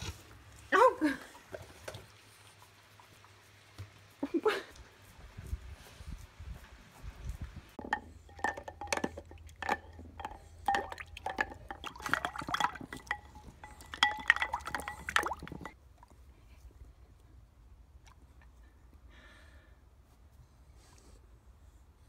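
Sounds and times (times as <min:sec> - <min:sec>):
bowl clinking: 0:07.8 - 0:15.8
dog lapping water: 0:08.3 - 0:16.1.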